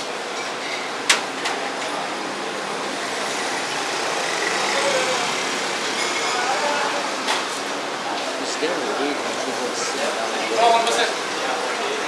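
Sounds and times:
road traffic passing: 0.0 - 12.0.

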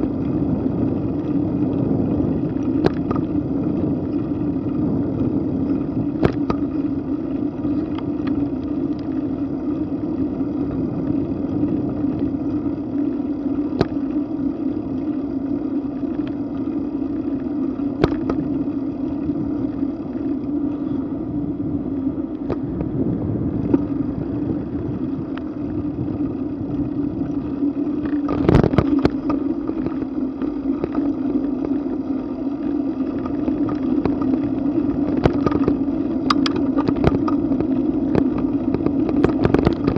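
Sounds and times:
tyres rolling on pavement: 0.0 - 39.9
wind: 0.0 - 39.9
bicycle knocking over bumps: 1.2 - 8.6, 17.9 - 18.8.

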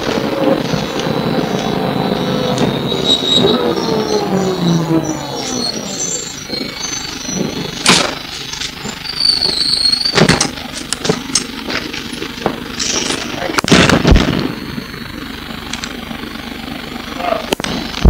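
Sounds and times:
bus engine and road noise: 0.0 - 18.0
bus body rattling and knocking: 7.6 - 14.3.

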